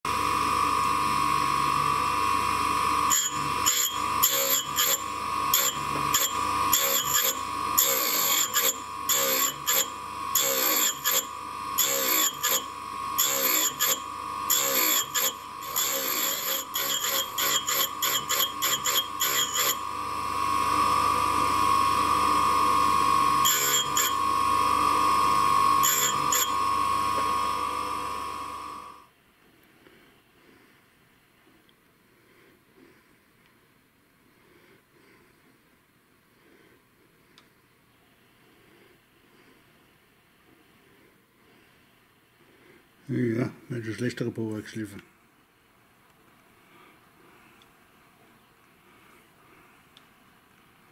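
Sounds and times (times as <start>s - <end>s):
grinding wheel whine: 0.1s - 29.1s
drill bit grinding on wheel: 1.4s - 29.0s.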